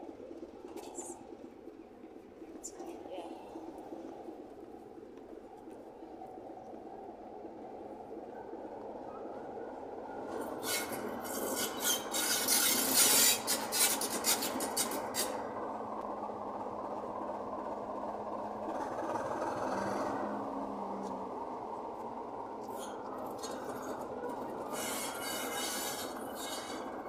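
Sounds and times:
diesel locomotive engine running: 10.3s - 27.0s
metallic scraping and clattering wheels: 10.4s - 15.4s, 22.7s - 27.0s
faint brake squeal: 10.6s - 14.4s, 24.7s - 27.0s.

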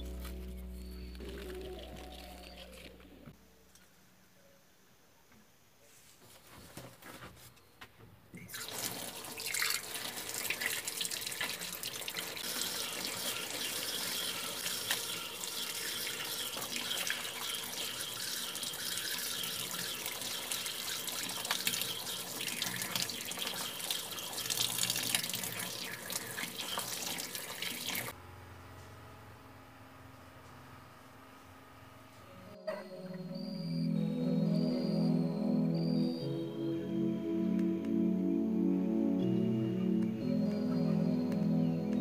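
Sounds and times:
tap water running and splashing: 8.4s - 28.1s.

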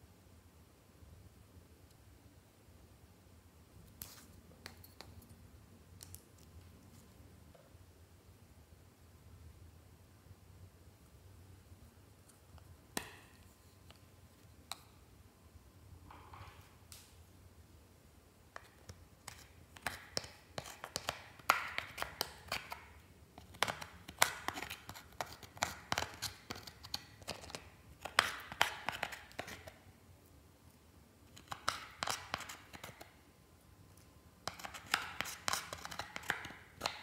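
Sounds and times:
metal spatula scraping eyeshadow: 23.4s - 29.8s, 31.3s - 33.1s, 34.4s - 37.0s.

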